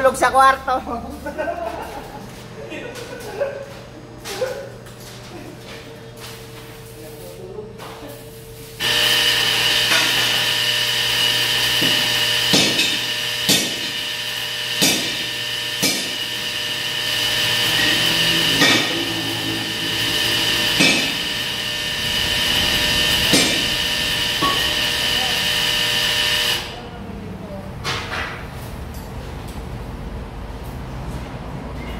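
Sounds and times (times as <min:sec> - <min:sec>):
power tool whining: 0:08.8 - 0:26.9.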